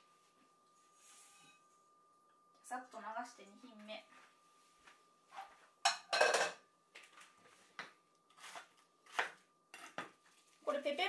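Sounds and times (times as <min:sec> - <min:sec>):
frying pan clattering: 0:05.9 - 0:06.6.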